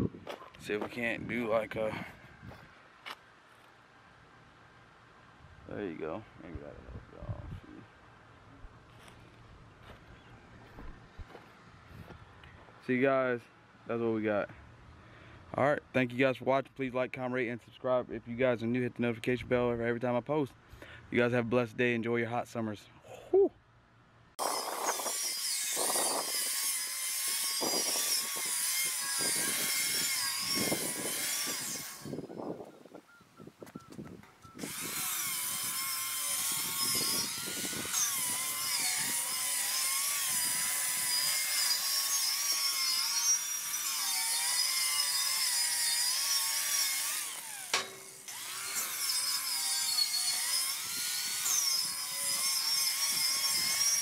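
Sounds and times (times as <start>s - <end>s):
angle grinder on steel: 24.4s - 32.3s, 34.6s - 54.0s.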